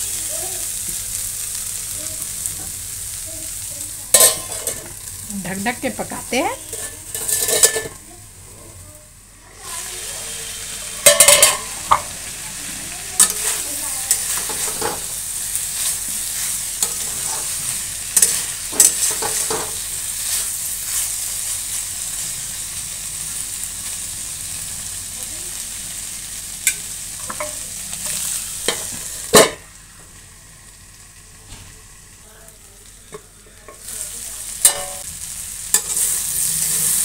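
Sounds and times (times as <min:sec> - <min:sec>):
vegetables sizzling in a pan: 0:00.0 - 0:37.0
metal lid clanking: 0:04.1 - 0:04.9, 0:06.7 - 0:08.0, 0:11.0 - 0:12.0, 0:34.6 - 0:35.0
spatula scraping a pan: 0:06.6 - 0:07.9, 0:13.2 - 0:21.8, 0:35.7 - 0:37.0.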